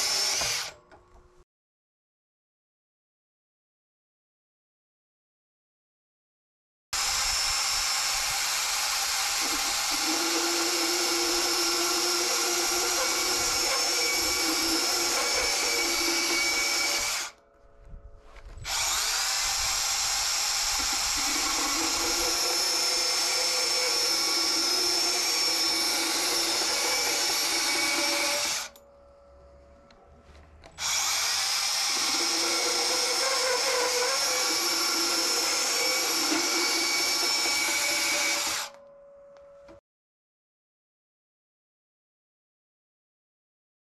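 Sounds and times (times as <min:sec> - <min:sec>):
band saw cutting steel: 0:00.0 - 0:00.8, 0:07.0 - 0:17.4, 0:18.6 - 0:28.8, 0:30.8 - 0:38.8.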